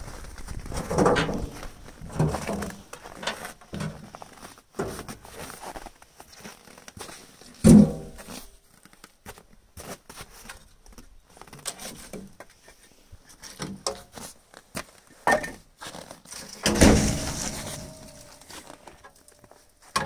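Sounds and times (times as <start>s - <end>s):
knocks and clunks of wood and metal: 0.5s - 5.4s, 7.5s - 8.4s, 15.2s - 15.7s, 16.3s - 20.0s
loud thuds: 16.7s - 18.5s.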